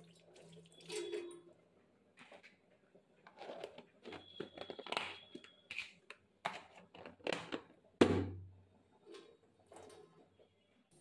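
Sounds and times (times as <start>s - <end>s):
plastic containers clicking and knocking: 6.4s - 8.4s.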